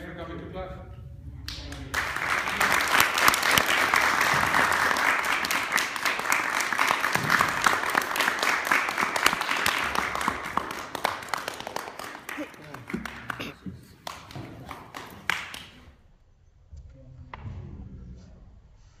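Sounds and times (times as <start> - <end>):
crowd applauding: 1.5 - 15.9.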